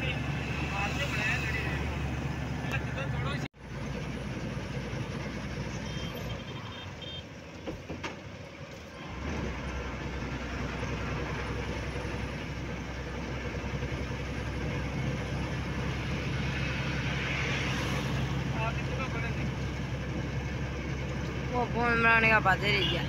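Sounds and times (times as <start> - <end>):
road noise: 0.0 - 23.0
truck engine rumble: 0.0 - 23.0.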